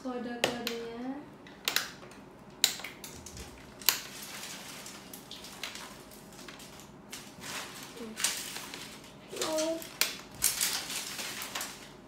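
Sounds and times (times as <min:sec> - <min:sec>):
crinkly plastic rustling: 0:03.0 - 0:12.0.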